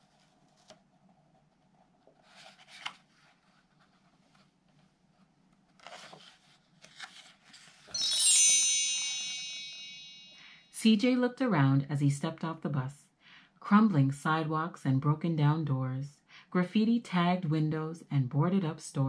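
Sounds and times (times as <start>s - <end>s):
paper pages rustling: 0.0s - 8.0s
high chimes: 7.9s - 10.9s.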